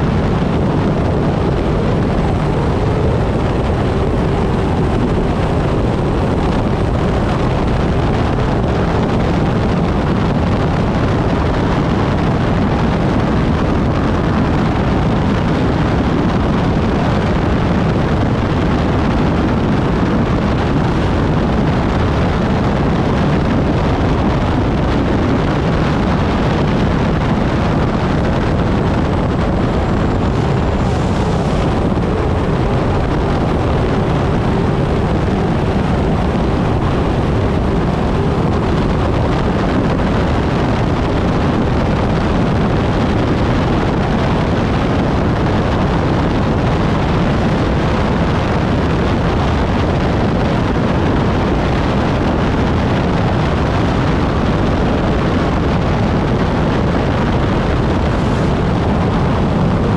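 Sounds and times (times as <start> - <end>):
loud turbine engine: 0.0 - 59.9
wind buffeting microphone: 0.0 - 59.9
water rushing: 26.6 - 40.8.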